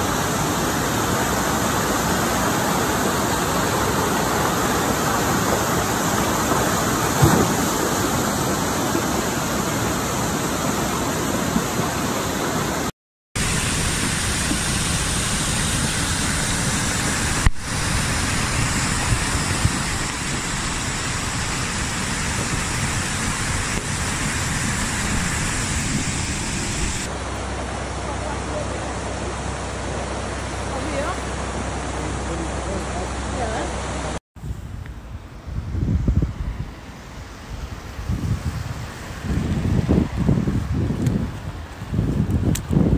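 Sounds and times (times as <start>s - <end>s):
water rushing over rocks: 0.0s - 34.2s.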